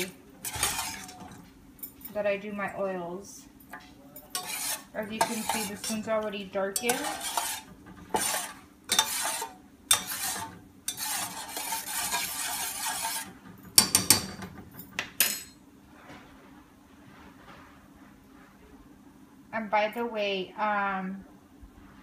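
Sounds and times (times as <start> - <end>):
metal spoon scraping a pot: 0.0 - 1.4, 4.3 - 14.3.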